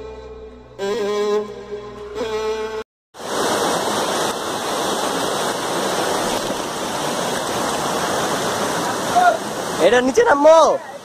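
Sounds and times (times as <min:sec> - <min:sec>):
bowed string music: 0:00.0 - 0:02.8
water rushing down rocky stream: 0:03.2 - 0:11.0.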